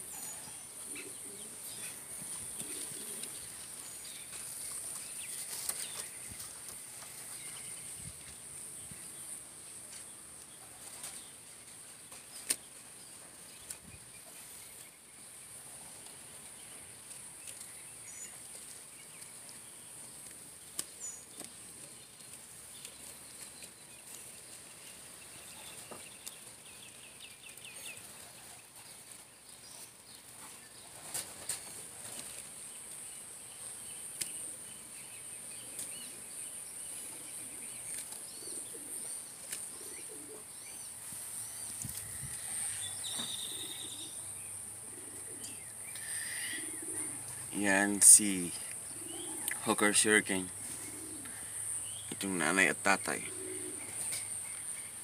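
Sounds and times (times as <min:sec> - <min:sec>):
faint bird chirps: 0:33.1 - 0:55.0.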